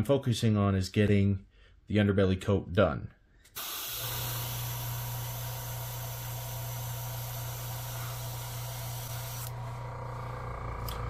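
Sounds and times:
airbrush air hiss: 3.6s - 9.5s
steady low hum: 4.1s - 11.0s.

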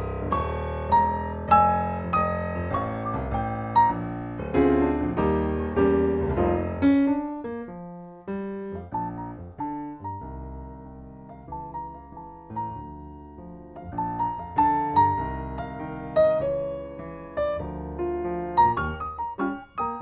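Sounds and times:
piano music: 0.0s - 20.0s.

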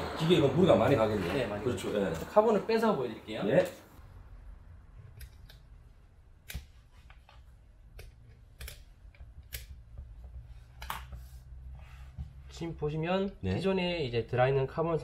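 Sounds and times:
small plastic and metal clicks: 7.9s - 9.8s.

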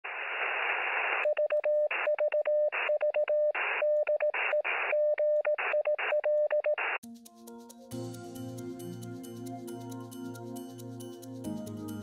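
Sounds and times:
radio static hiss: 0.0s - 1.3s, 3.6s - 5.0s.

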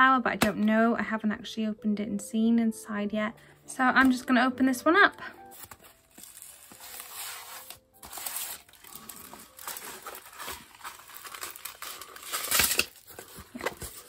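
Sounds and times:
plastic film crinkling and rustling: 5.4s - 14.0s.

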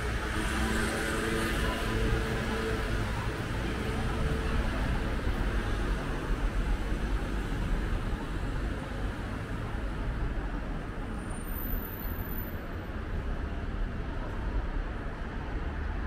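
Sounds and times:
city street traffic: 0.0s - 16.0s.

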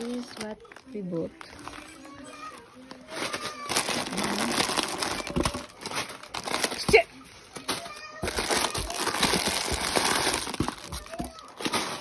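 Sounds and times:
plastic packets crinkling: 0.0s - 12.0s.

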